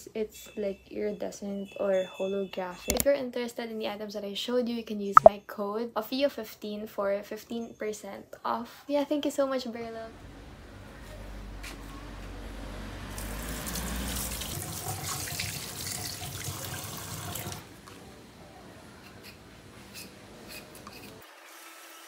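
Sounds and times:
faucet running into sink: 13.2s - 17.6s.

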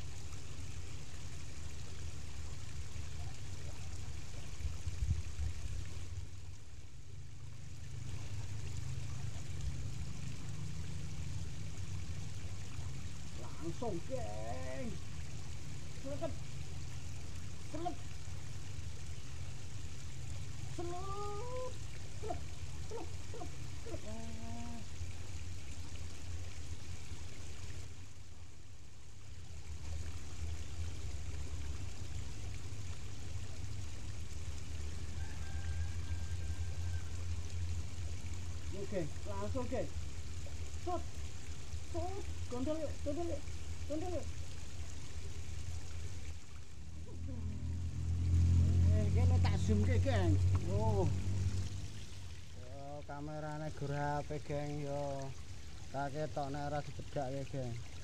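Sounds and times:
water rushing in rocky creek: 0.0s - 58.0s
low rumble: 46.6s - 52.4s.

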